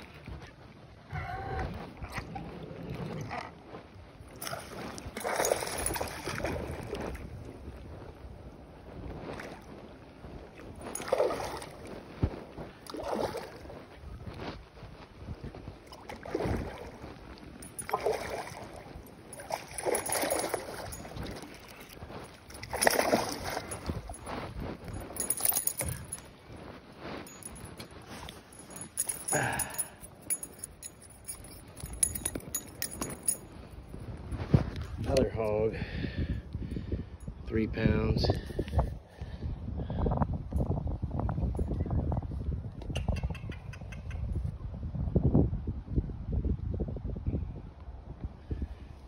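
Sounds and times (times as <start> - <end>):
fish splashing at water surface: 22.6 - 24.0.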